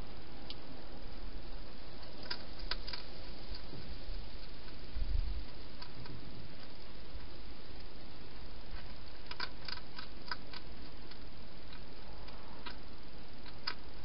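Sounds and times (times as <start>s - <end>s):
steady hiss: 0.0s - 14.0s
hedgehog chewing clicks: 2.2s - 3.7s, 5.4s - 6.9s, 8.7s - 12.8s, 13.4s - 13.9s.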